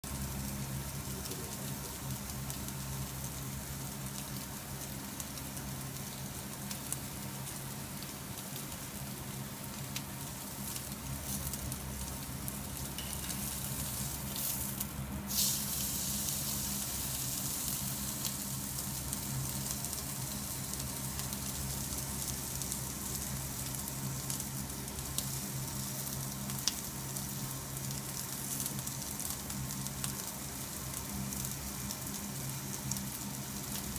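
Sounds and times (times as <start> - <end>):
steady low hum: 0.0 - 33.9
steak sizzling on grill: 0.1 - 33.9
small pops and crackles: 4.0 - 8.9.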